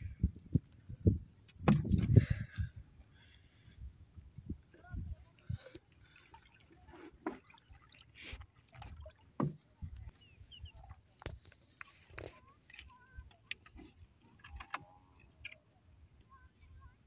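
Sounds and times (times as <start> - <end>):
water drips: 5.9 - 10.6.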